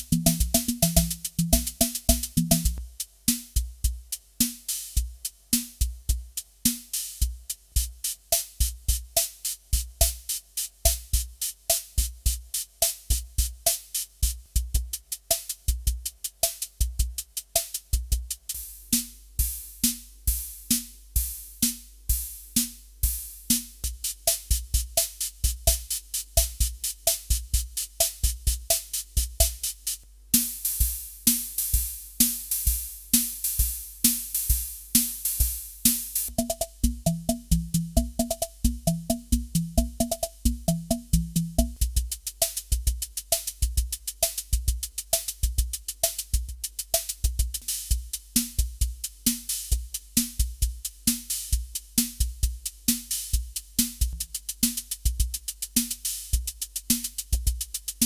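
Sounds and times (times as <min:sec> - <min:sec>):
electronic drum pattern: 0:00.0 - 0:02.8, 0:30.4 - 0:58.0.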